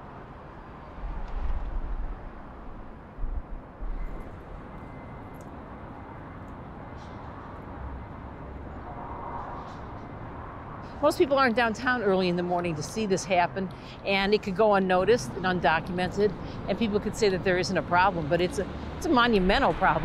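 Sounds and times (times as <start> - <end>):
distant traffic hum: 0.0 - 20.0
deep low rumbles: 1.1 - 4.3.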